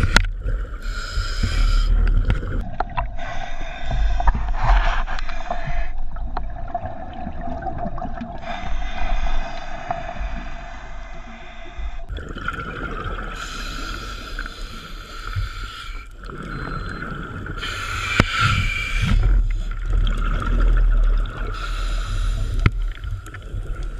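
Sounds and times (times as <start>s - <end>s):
hissing regulator inhalations: 0.8s - 2.2s, 13.4s - 19.8s, 21.5s - 23.2s
exhaled bubbles underwater: 6.1s - 8.5s, 12.1s - 15.2s, 16.1s - 23.9s.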